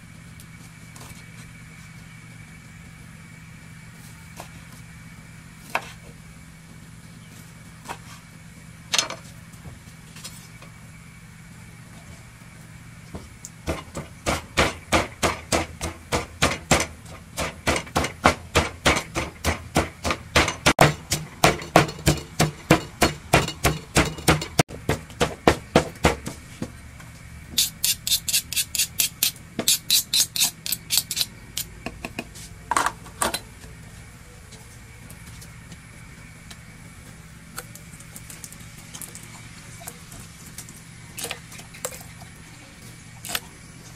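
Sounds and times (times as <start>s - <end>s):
pestle pounding in clay mortar: 13.6s - 26.4s.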